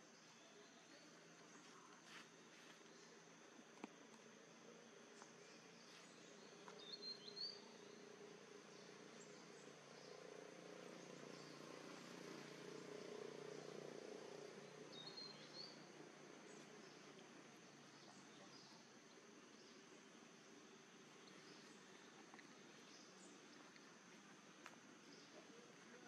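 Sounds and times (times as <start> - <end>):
high insect drone: 0.0 - 26.0
bird chirps: 5.5 - 8.2, 14.4 - 17.2.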